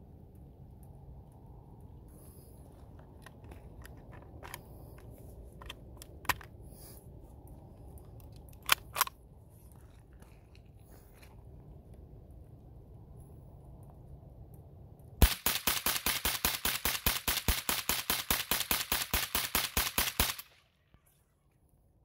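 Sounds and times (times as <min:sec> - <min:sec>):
rifle clicks and clacks: 0:03.0 - 0:06.6, 0:08.0 - 0:09.2, 0:15.2 - 0:20.6.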